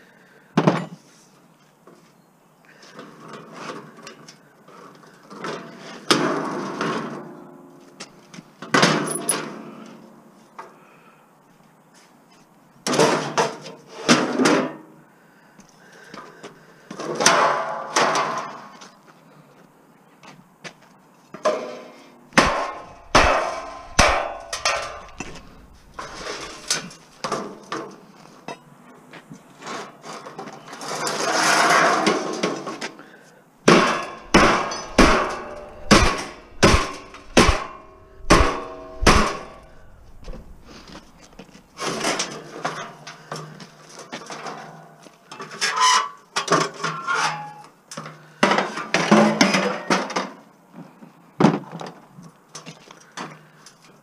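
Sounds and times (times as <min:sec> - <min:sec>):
hammer striking sheet metal: 0:22.4 - 0:26.7, 0:33.7 - 0:41.2
metal scraping rattle: 0:22.4 - 0:27.4, 0:33.7 - 0:42.5.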